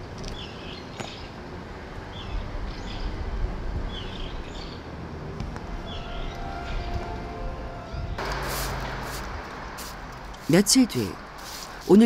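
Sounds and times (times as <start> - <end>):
small birds chirping: 0.2 - 1.4, 8.2 - 12.0
low background rumble: 7.9 - 12.0.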